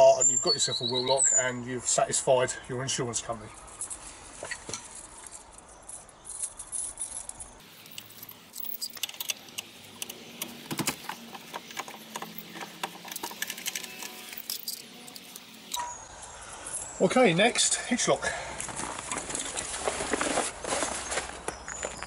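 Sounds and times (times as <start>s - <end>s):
metal parts clicking and rattling: 3.6s - 16.0s
keys jangling: 4.8s - 9.8s, 11.7s - 15.7s.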